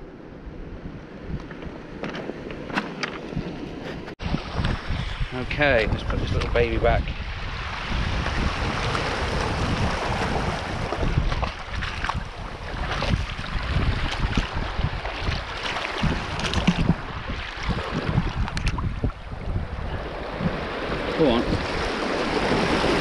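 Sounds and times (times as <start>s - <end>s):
wind noise on microphone: 0.0s - 23.0s
seawater splashing and sloshing: 7.2s - 23.0s.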